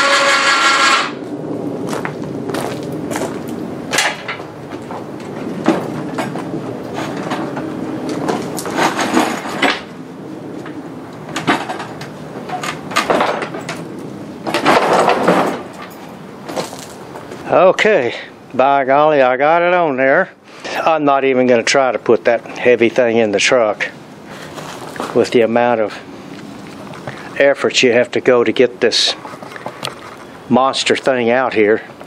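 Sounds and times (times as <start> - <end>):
machine scraping on steel: 0.0 - 1.2
metal knocks and clanks: 3.9 - 10.0, 10.6 - 16.8.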